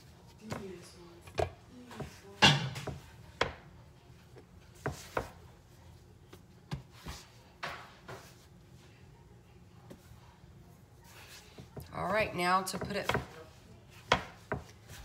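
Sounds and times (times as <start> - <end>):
hands rubbing dough: 11.0 - 12.2
hands patting dough on board: 12.8 - 15.0.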